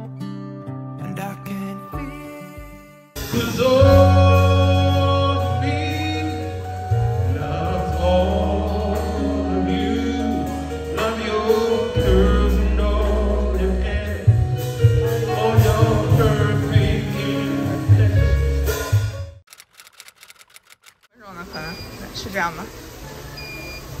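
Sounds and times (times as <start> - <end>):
keyboard: 0.8 - 19.4
man singing: 1.0 - 18.8
bass guitar: 1.9 - 19.4
drums: 2.6 - 19.4.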